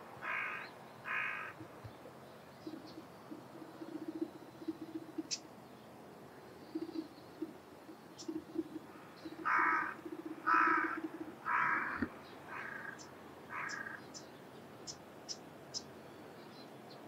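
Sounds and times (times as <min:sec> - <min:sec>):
crow cawing: 0:00.2 - 0:01.6, 0:09.4 - 0:14.0
small birds chirping: 0:00.2 - 0:17.0.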